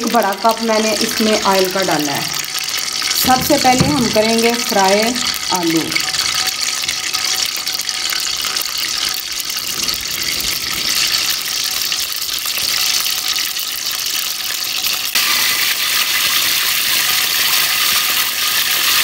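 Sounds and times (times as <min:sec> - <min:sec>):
gas stove burner hissing: 0:00.0 - 0:06.4.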